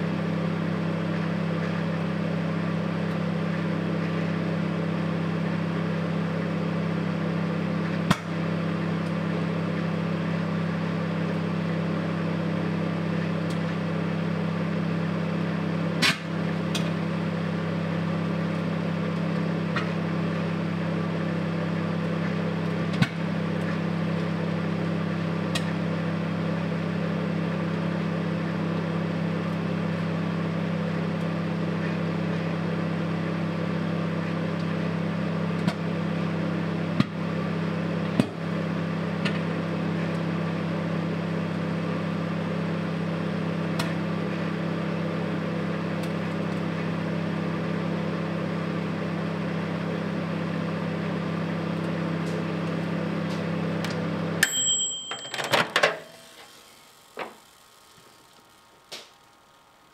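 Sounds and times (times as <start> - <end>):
microwave oven humming: 0.0 - 59.9
timer bell ding: 54.4 - 56.2.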